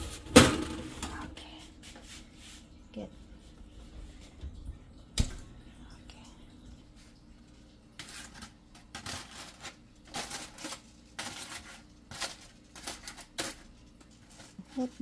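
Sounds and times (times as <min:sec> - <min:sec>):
aluminium foil crinkling: 0:08.0 - 0:15.0.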